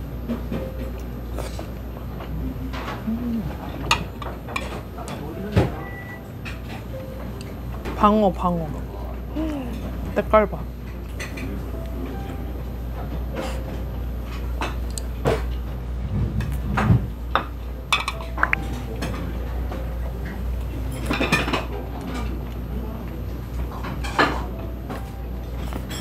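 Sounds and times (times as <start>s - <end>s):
steady low hum: 0.0s - 26.0s
ceramic plates clinking: 17.4s - 19.9s.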